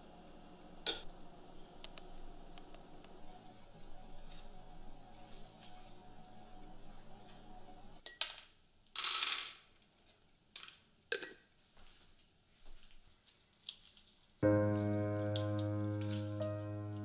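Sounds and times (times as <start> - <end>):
background music with held notes: 14.4 - 17.0.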